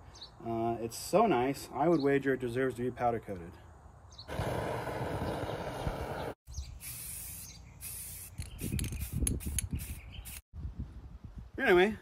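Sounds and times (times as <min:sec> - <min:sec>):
spray paint can hissing: 0:06.8 - 0:10.5.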